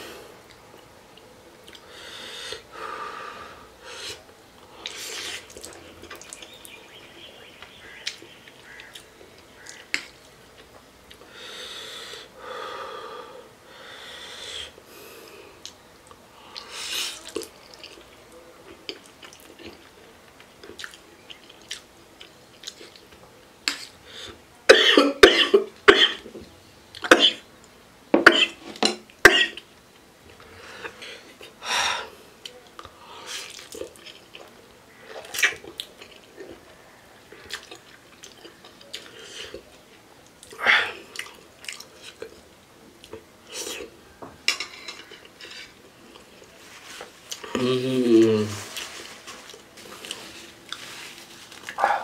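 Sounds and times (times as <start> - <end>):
man drawing sharp hissing breaths: 1.8 - 5.5, 11.2 - 15.6
faint chewing clicks: 15.6 - 23.8
man coughing: 24.7 - 26.2.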